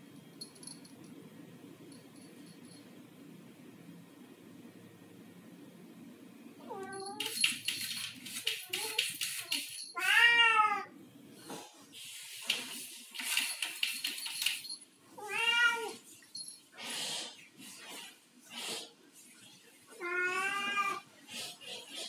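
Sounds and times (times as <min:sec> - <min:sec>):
cat meowing: 0:10.0 - 0:10.9, 0:15.2 - 0:16.0, 0:20.0 - 0:21.0.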